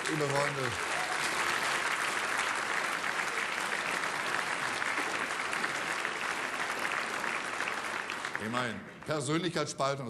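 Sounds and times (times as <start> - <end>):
audience applauding: 0.0 - 9.5.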